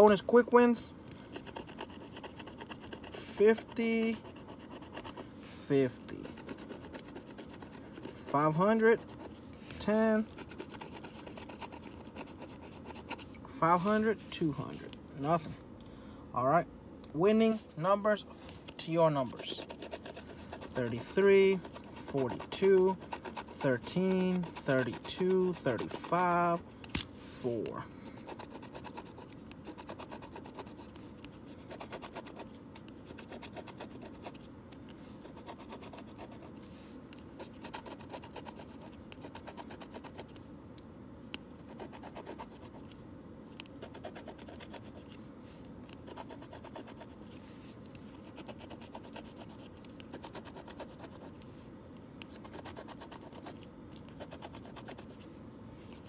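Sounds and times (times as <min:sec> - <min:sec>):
coin scratching lottery ticket: 0:01.3 - 0:13.9, 0:19.0 - 0:26.6, 0:28.3 - 0:34.4, 0:35.2 - 0:36.5, 0:37.4 - 0:40.3, 0:41.7 - 0:42.9, 0:43.8 - 0:45.1, 0:46.0 - 0:47.2, 0:48.2 - 0:51.4, 0:52.3 - 0:55.2.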